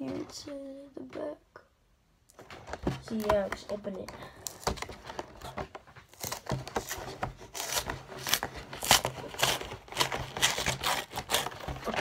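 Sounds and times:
cardboard scraping and tearing: 4.4s - 12.0s.

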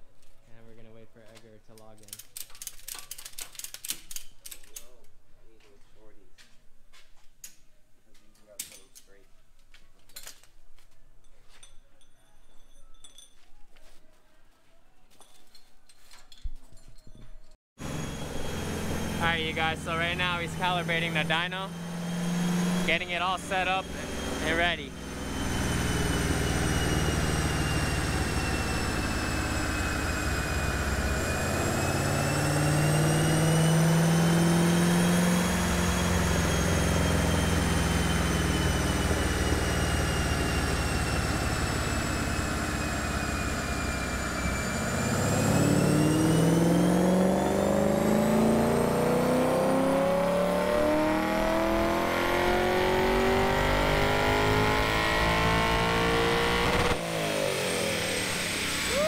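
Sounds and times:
engine running on dyno: 17.8s - 59.0s
high whine: 17.8s - 59.0s.

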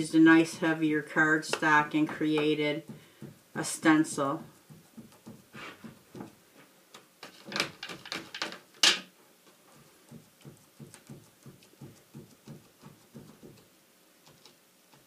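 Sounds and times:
sponge rubbing strokes on card: 2.9s - 6.4s, 9.5s - 15.0s.

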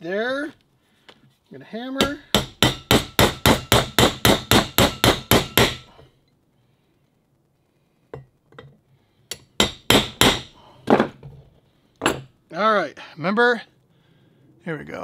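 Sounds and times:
hammer tapping metal: 2.0s - 6.1s, 9.3s - 10.6s.

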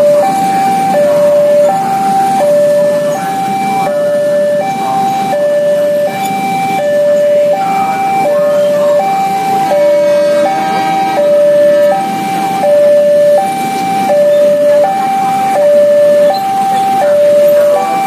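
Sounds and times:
motorbike and car engines: 0.0s - 18.0s
two-tone level crossing alarm: 0.0s - 18.0s.

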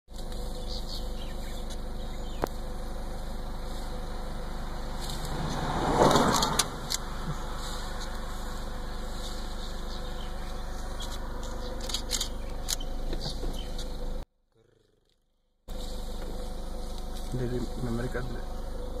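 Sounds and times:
vehicle engine humming: 0.1s - 14.3s, 15.1s - 19.0s
rush of noise: 4.5s - 9.4s
sharp ticks: 6.3s - 7.1s.

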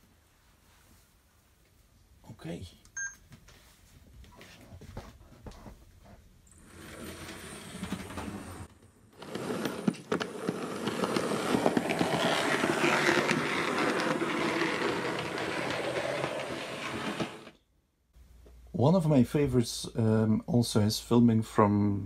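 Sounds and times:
model train rolling on track: 6.6s - 17.6s.

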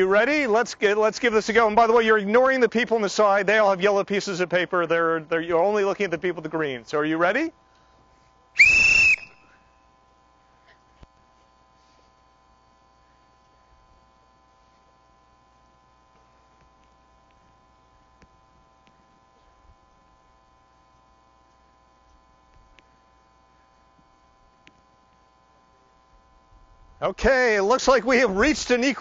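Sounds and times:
faint steady hum: 0.0s - 29.0s
high-pitched whistle blast: 8.6s - 9.6s
faint ticks: 20.9s - 23.4s.

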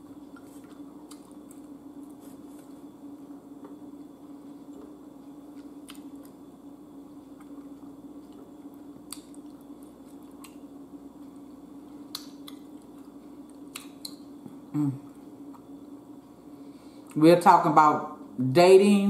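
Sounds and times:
wet chewing of food: 0.0s - 6.5s, 7.1s - 14.4s
steady low hum: 0.0s - 19.0s
person humming mm: 14.7s - 15.1s.

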